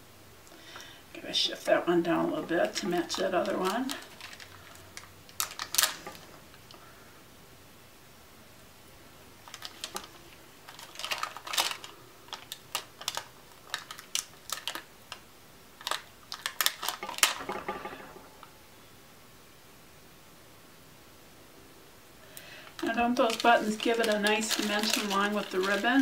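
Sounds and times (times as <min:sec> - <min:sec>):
adhesive dots peeling crackle: 0:02.6 - 0:06.8, 0:09.4 - 0:18.2, 0:22.4 - 0:26.0.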